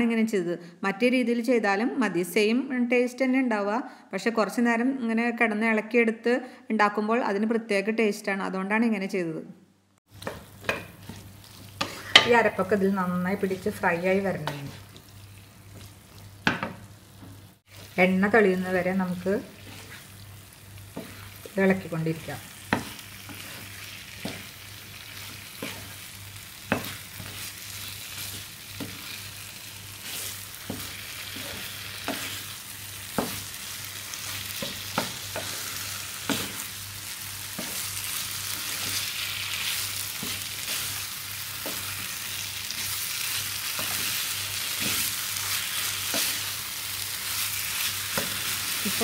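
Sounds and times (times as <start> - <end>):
food sizzling in oil: 10.1 - 49.0
spatula tapping and scraping pan: 10.2 - 12.4, 20.9 - 21.5, 22.7 - 24.6, 25.2 - 26.0, 26.6 - 29.2, 30.0 - 33.6, 34.5 - 36.7, 37.5 - 39.0, 48.1 - 48.6.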